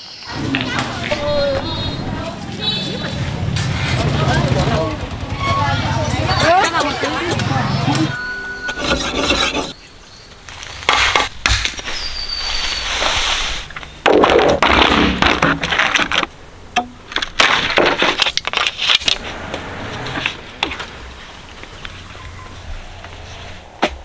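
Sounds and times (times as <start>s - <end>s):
knife scraping on whetstone: 8.1s - 9.8s
bamboo poles knocking and clattering: 10.5s - 12.0s, 13.7s - 19.2s.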